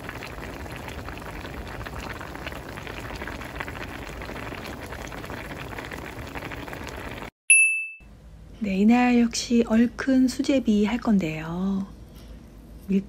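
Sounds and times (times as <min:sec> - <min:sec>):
soup boiling and bubbling: 0:00.0 - 0:07.3.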